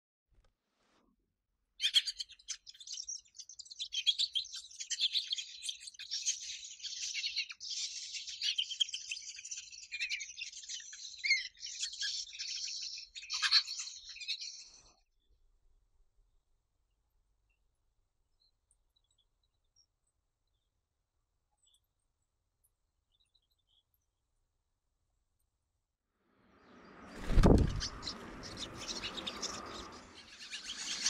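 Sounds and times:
nestlings begging calls: 0:01.8 - 0:14.8, 0:26.7 - 0:31.0.

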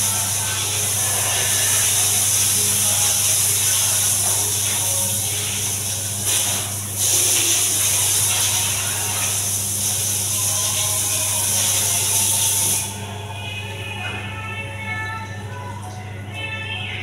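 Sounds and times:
water spraying on tile floor: 0:00.0 - 0:13.0.

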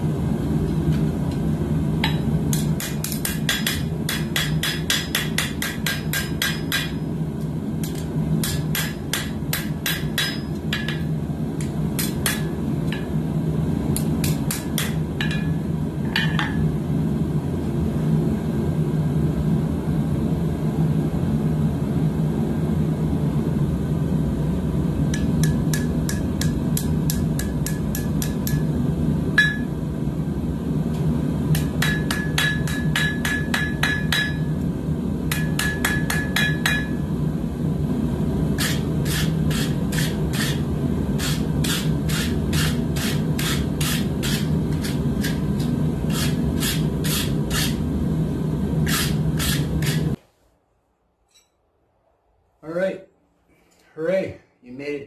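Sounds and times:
hammer striking steel on anvil: 0:02.0 - 0:07.1, 0:07.8 - 0:13.2, 0:14.0 - 0:16.6, 0:25.1 - 0:28.7, 0:29.4 - 0:29.8, 0:31.5 - 0:34.5, 0:35.3 - 0:37.0.

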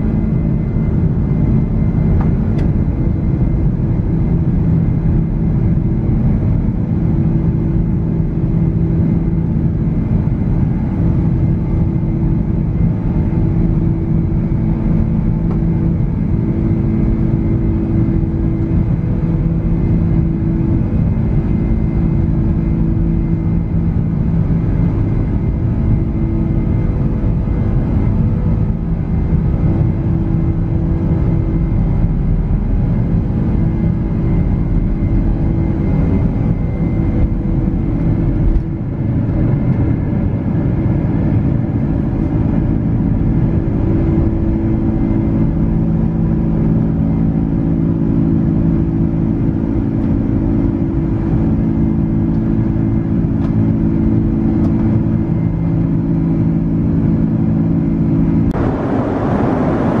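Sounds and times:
jet engines droning in cabin: 0:00.0 - 1:00.0
low runway rumble: 0:00.0 - 1:00.0.

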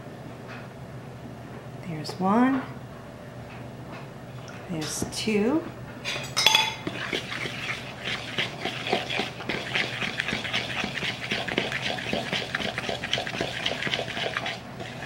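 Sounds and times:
utensil scraping bowl stirring: 0:06.1 - 0:15.0.

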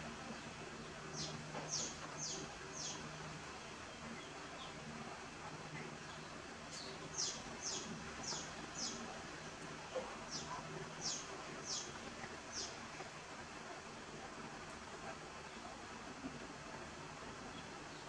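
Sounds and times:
faint steady hiss: 0:00.0 - 0:18.0
bird chirping: 0:01.1 - 0:03.1, 0:06.7 - 0:09.0, 0:10.3 - 0:11.9.

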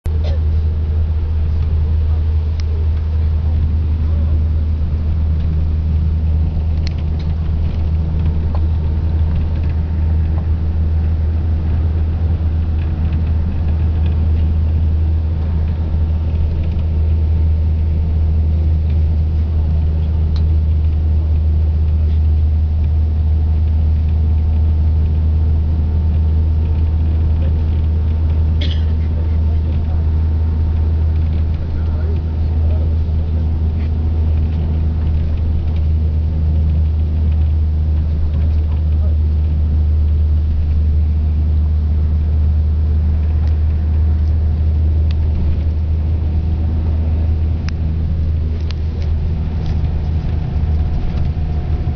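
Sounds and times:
coach engine and road rumble: 0:00.0 - 0:51.9.

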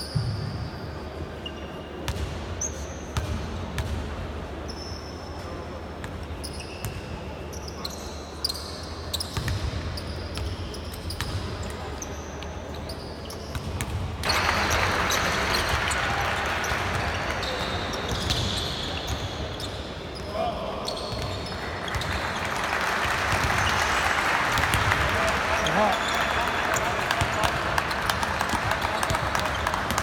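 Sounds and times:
sneakers squeaking on floor: 0:00.0 - 0:03.4, 0:06.3 - 0:22.5.

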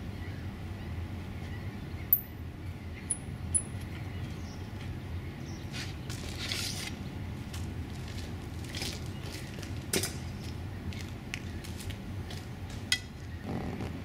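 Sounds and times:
rustling scrape: 0:05.7 - 0:07.0.

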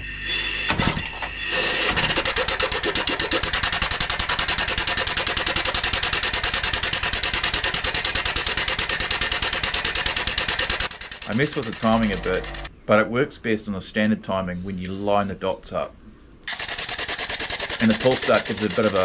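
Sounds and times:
air-powered engine chuffing: 0:01.4 - 0:12.7, 0:16.5 - 0:19.0.

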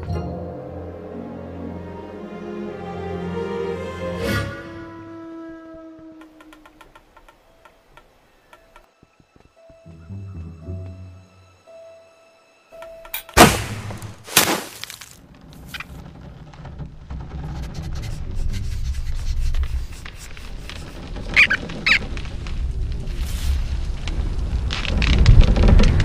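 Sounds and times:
low rumble: 0:15.2 - 0:26.0
high squeaky chirps: 0:20.4 - 0:22.1.

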